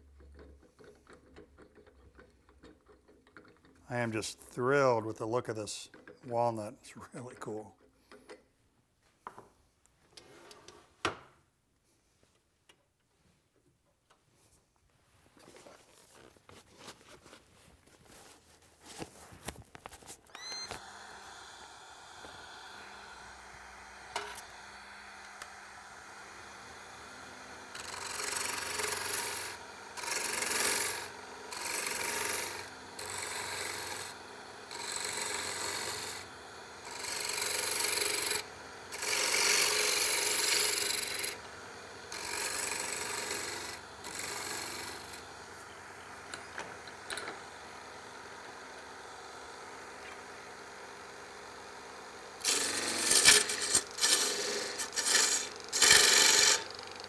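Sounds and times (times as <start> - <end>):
lathe tool cutting wood: 20.4 - 57.0.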